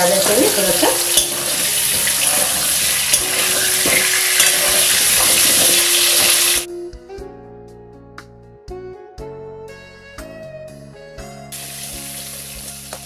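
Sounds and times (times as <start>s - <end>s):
metal spatula scraping a pan: 0.0s - 6.7s
vegetables sizzling in hot oil: 0.0s - 6.7s, 11.6s - 13.0s
music: 0.0s - 13.0s.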